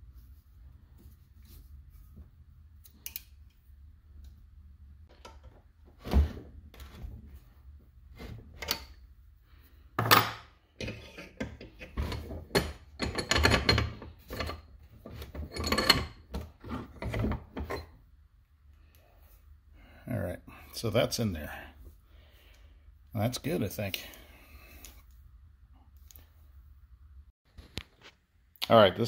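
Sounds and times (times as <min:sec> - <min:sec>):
metal clanking and rattling: 0:10.0 - 0:17.9.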